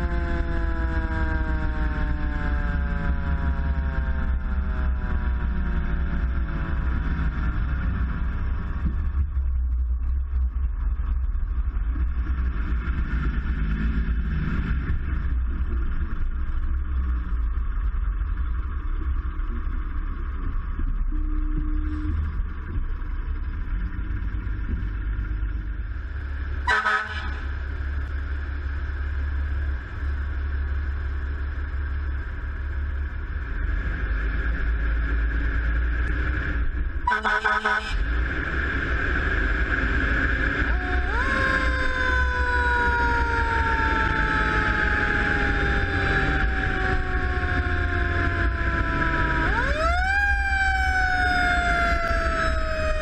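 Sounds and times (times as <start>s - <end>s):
fire engine rumbling: 0.0s - 53.0s
horn blasts: 26.6s - 27.6s, 37.0s - 38.1s.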